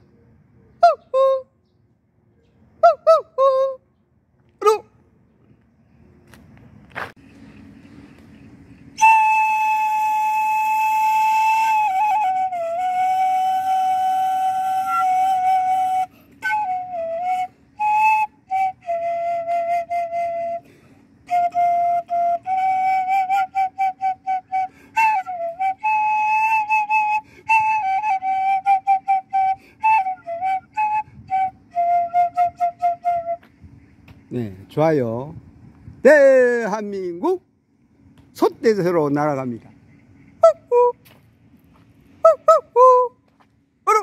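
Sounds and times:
bamboo flute melody: 0.8 - 1.6, 2.8 - 3.9, 8.9 - 33.6, 40.4 - 41.1, 42.2 - 44.0.

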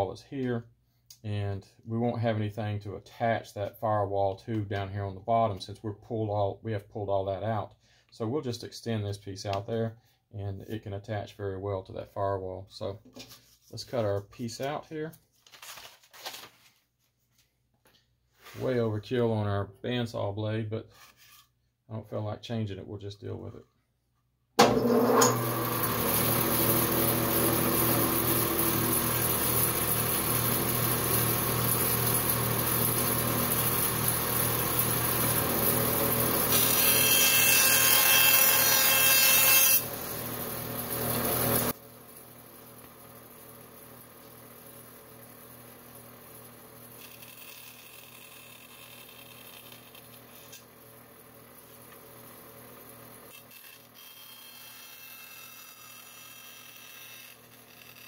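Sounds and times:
bandsaw cutting wood: 24.6 - 41.8, 46.4 - 51.9, 53.3 - 58.0.

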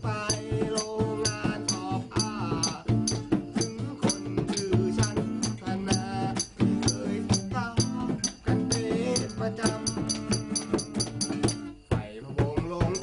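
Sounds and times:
acoustic guitar strumming: 0.0 - 13.0
man singing: 0.0 - 13.0
sharp metallic taps: 0.3 - 13.0.

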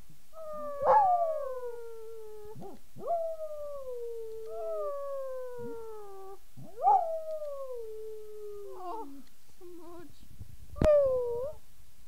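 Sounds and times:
dog howling: 0.4 - 9.1.

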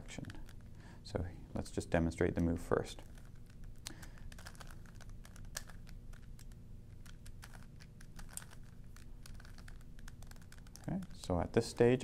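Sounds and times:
puzzle cube clicking: 3.0 - 11.2.

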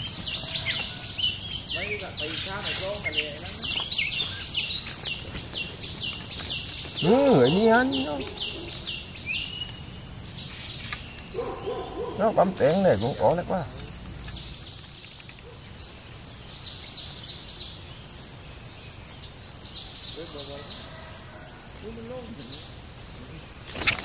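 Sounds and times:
low wavering calls: 0.0 - 10.5
insects chirring: 0.0 - 24.0.

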